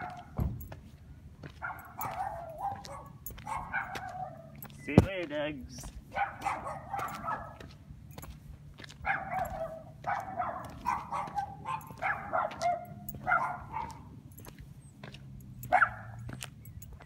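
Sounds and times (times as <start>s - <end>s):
dog barking: 0.0s - 0.4s, 1.6s - 4.7s, 6.1s - 7.7s, 9.0s - 14.1s, 15.6s - 16.3s.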